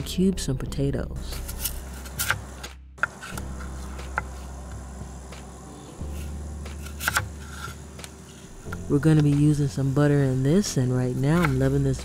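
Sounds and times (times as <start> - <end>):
knife slicing potato: 1.3 - 4.5, 6.0 - 8.1.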